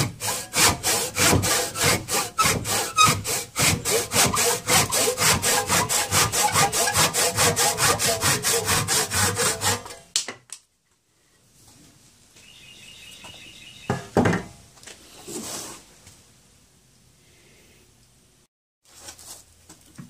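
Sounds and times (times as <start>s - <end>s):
hand saw cutting wood: 0.0s - 10.0s.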